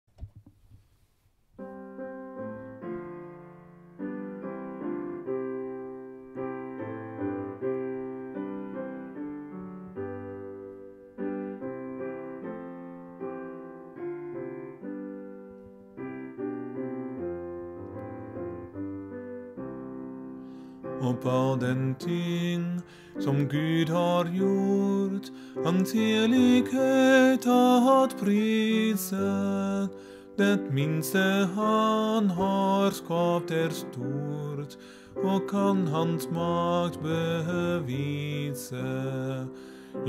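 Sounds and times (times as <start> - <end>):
piano playing hymn chords: 1.6 - 40.0.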